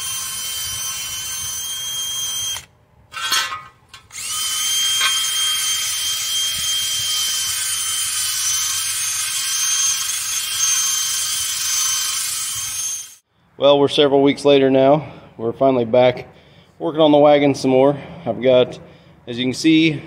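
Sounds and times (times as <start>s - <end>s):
drill spinning wire brush on metal: 0.0s - 13.2s.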